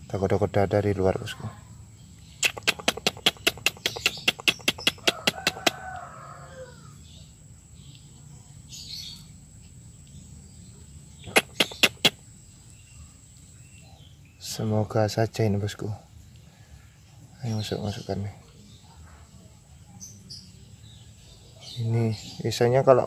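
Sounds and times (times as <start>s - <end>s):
rooster crowing: 5.0s - 7.1s.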